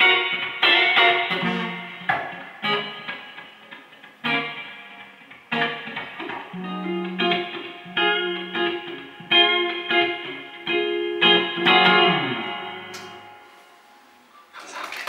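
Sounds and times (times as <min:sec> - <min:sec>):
electric guitar chords: 0:00.0 - 0:14.3.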